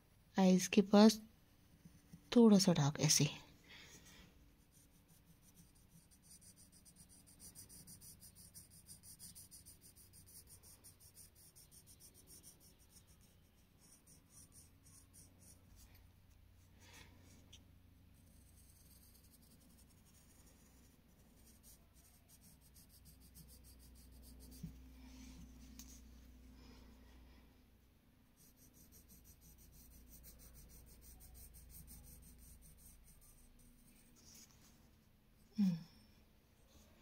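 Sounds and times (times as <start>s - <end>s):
low steady hum: 0.0s - 37.0s
pencil scratching on paper: 4.6s - 15.9s, 18.2s - 24.8s, 28.4s - 34.5s.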